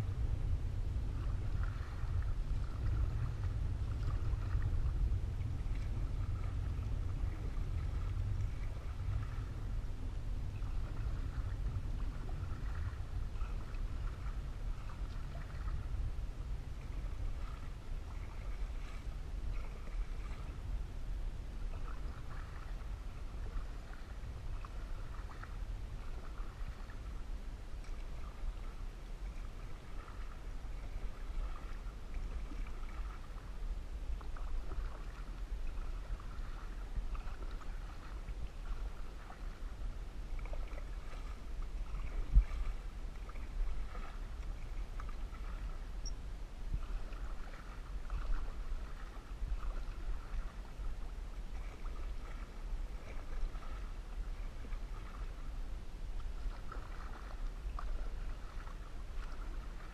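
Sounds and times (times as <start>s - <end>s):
low rumble: 0.0s - 56.8s
paddle strokes swishing through water: 0.0s - 59.9s.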